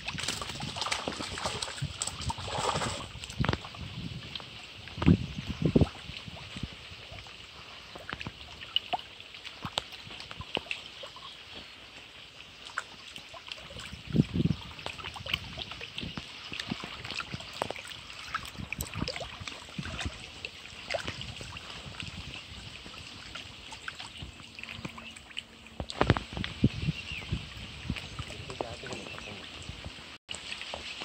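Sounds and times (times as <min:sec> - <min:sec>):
small waves lapping on rocks: 0:00.0 - 0:03.8.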